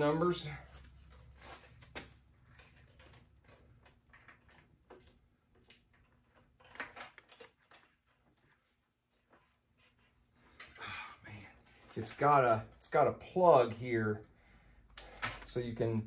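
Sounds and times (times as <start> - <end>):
clicks of handling wiring: 0.7 - 8.5.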